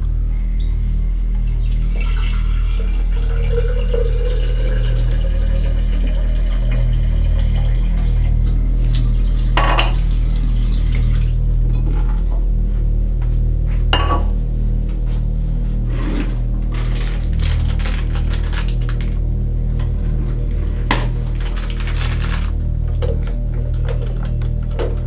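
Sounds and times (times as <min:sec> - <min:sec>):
tap water filling jug: 0:01.3 - 0:12.2.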